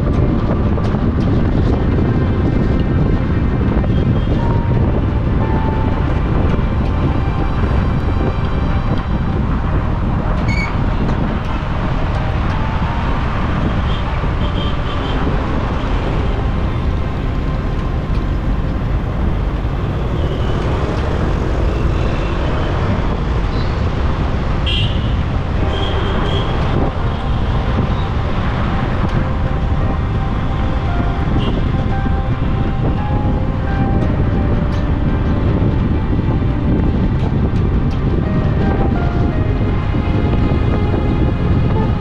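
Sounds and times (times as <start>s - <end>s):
road and engine rumble: 0.0s - 42.0s
vehicle horn toots: 24.6s - 29.4s, 30.3s - 32.4s.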